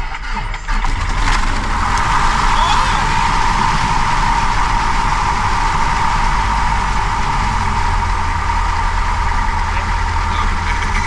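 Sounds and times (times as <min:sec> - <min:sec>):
aircraft engine idling: 0:00.0 - 0:11.0
propeller noise: 0:00.2 - 0:11.0.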